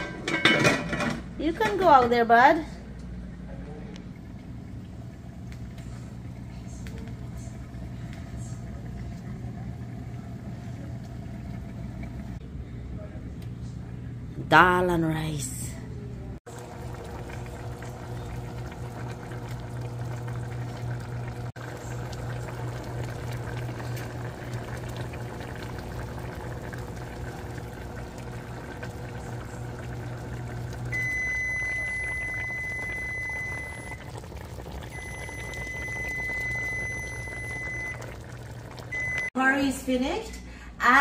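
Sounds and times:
pot bubbling: 4.1 - 12.4, 16.4 - 39.3.

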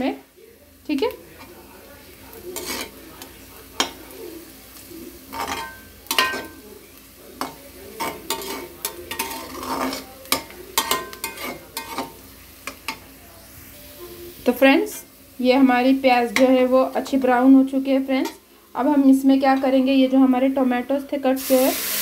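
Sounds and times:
onions sizzling in oil: 0.0 - 22.0
metal spatula scraping a pan: 2.4 - 4.1, 5.2 - 6.6, 7.4 - 13.0, 15.8 - 20.8.

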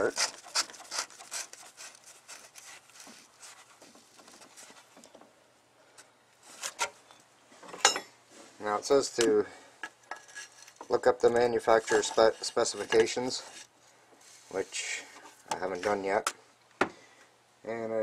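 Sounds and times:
gloved hand scraping plastic: 0.0 - 5.1, 10.2 - 13.7, 14.3 - 16.2.

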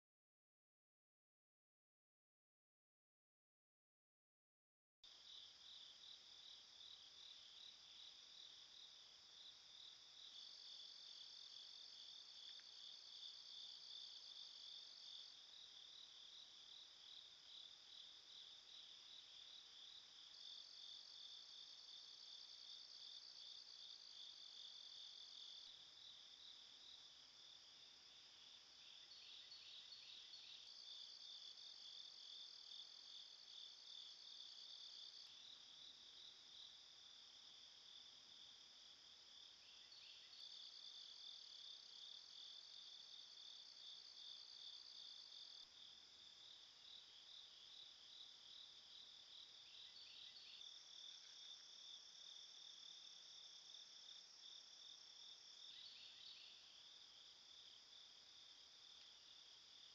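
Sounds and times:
higher insect call: 5.2 - 59.9
insects pulsing trill: 5.2 - 59.9.

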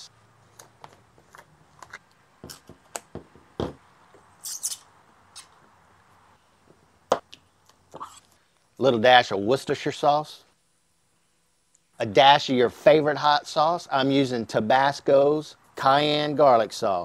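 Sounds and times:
spoon scraping jar: 4.4 - 5.5.

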